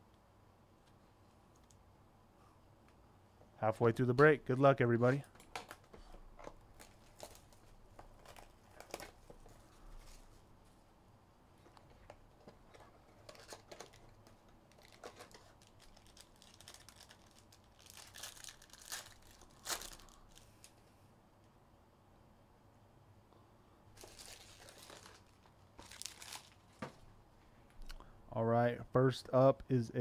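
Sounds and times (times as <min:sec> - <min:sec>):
wrapper crinkling and tearing: 0:05.2 - 0:10.3, 0:12.1 - 0:20.8, 0:24.0 - 0:27.0.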